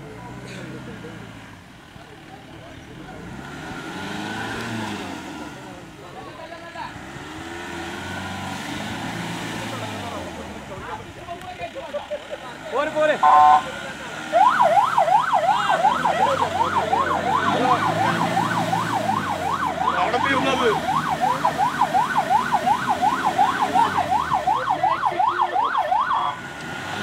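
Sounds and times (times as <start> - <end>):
jeep engine running: 0.0 - 27.0
electronic siren wailing: 13.2 - 13.7, 14.3 - 26.4.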